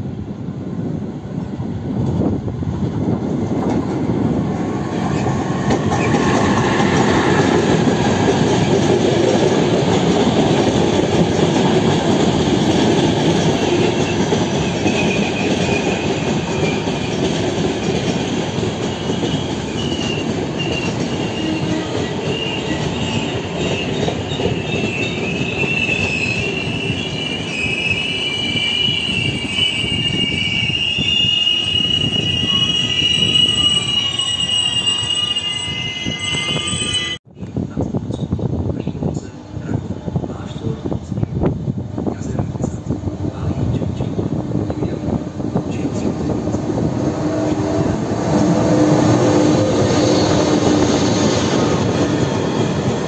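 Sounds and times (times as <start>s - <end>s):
train wheels rolling on rails: 0.6s - 53.0s
high wheel squeal: 18.9s - 37.2s.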